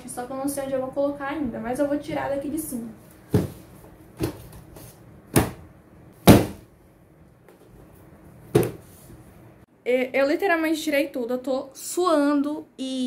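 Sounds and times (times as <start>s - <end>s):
books thumping on desk: 3.3s - 6.7s, 8.5s - 8.9s.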